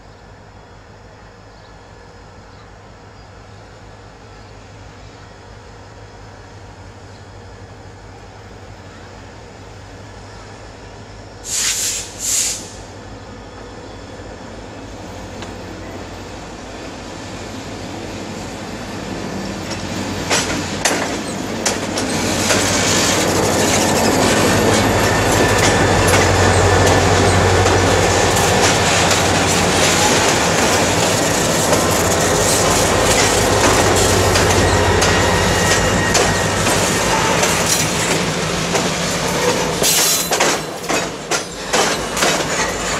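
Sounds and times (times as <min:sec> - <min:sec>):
diesel locomotive engines droning: 0:00.0 - 0:42.9
wheels clicking over rail joints: 0:19.6 - 0:42.9.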